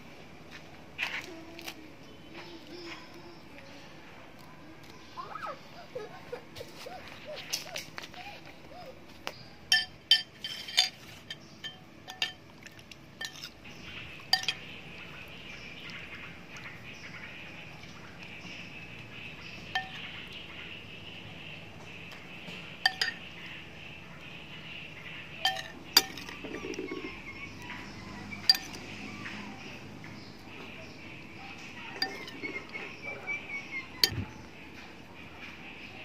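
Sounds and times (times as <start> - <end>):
metal spoon clinking ceramic bowl: 9.7 - 12.4, 13.2 - 13.6, 14.3 - 14.6, 22.8 - 23.2, 25.4 - 26.4, 28.4 - 28.9, 32.0 - 32.8.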